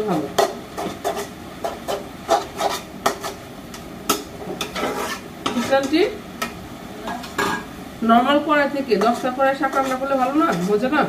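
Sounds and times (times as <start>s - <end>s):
spatula scraping a pan: 0.3s - 6.2s, 9.0s - 11.0s.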